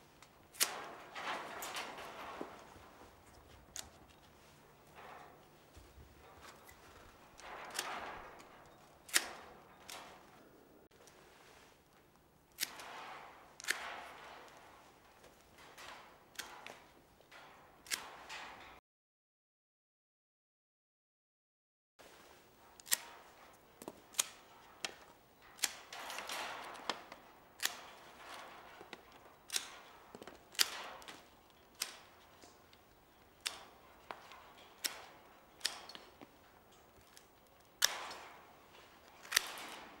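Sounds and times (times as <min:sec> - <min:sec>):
rustling of cut wood: 0:00.0 - 0:12.9.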